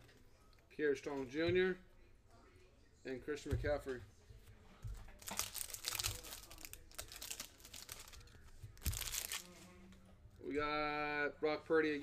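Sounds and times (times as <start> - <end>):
foil wrapper crinkling and tearing: 5.2 - 9.6.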